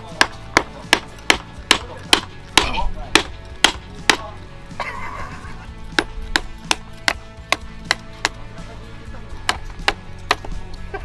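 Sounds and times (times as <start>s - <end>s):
hammer knocking on firewood: 0.0s - 4.3s, 5.9s - 8.4s, 9.4s - 10.6s.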